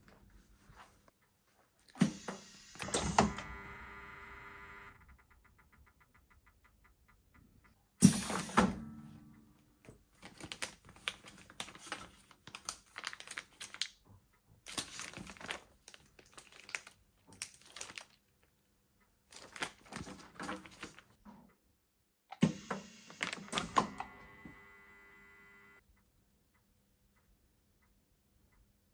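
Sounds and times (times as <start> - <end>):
plastic bags crinkling: 10.2 - 14.0, 14.7 - 18.5, 19.3 - 21.2.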